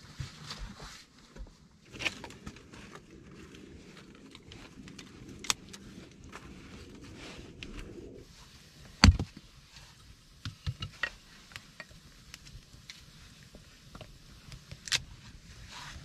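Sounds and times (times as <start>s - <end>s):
twigs rustling and scraping: 1.8s - 8.2s.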